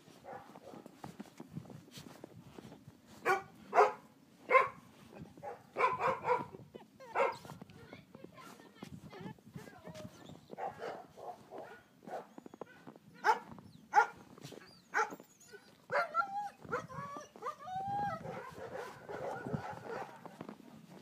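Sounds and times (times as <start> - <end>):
puppy barking: 0.2 - 0.9, 3.2 - 4.8, 5.4 - 7.6, 10.6 - 14.2, 14.9 - 17.6, 18.2 - 20.4
puppy yipping: 5.5 - 7.6, 11.6 - 20.3.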